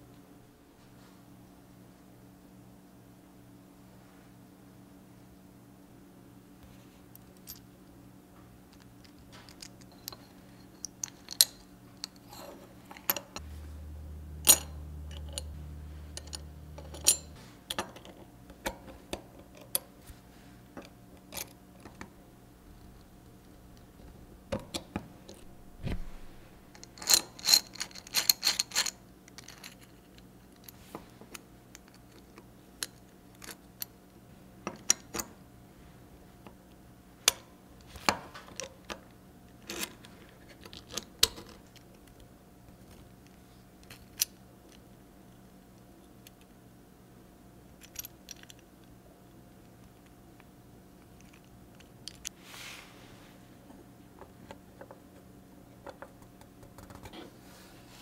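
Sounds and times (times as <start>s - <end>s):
low hum: 13.2s - 17.8s, 25.2s - 27.2s
small metal parts clinking: 14.4s - 18.1s, 26.7s - 30.8s.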